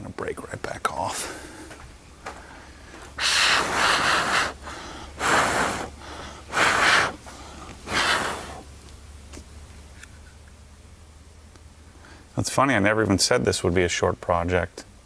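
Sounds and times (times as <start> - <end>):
breathy exhalations: 1.1 - 8.7, 11.9 - 12.3.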